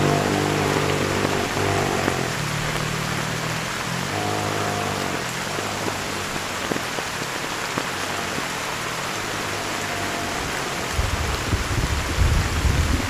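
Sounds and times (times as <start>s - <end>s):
heavy rain: 0.0s - 13.0s.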